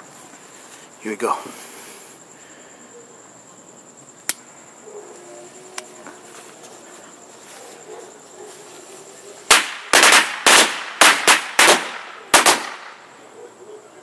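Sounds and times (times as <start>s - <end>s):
sharp click: 4.2s - 4.4s
firecrackers banging: 9.5s - 13.1s.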